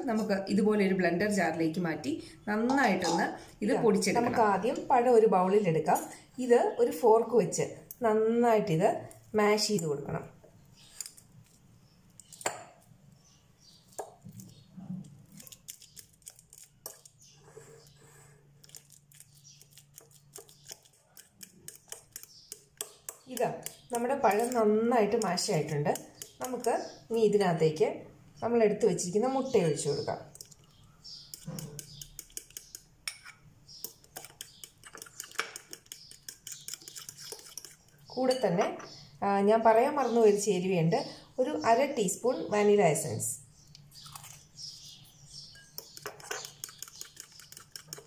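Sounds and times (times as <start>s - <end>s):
fork clicking against glass bowl: 18.6s - 26.8s, 31.2s - 37.9s, 45.6s - 48.0s.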